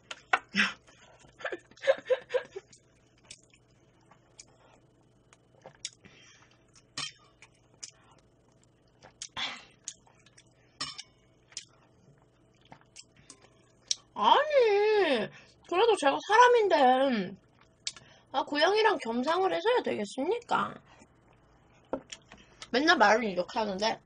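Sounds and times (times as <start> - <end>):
eating and sipping: 0.0 - 14.2, 17.4 - 18.2, 20.8 - 22.7.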